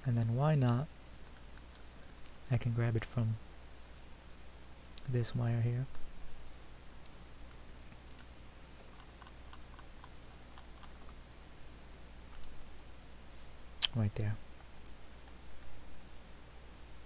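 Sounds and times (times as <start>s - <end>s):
faint low hum: 0.0s - 17.0s
computer mouse clicks: 8.0s - 11.2s, 12.3s - 12.6s.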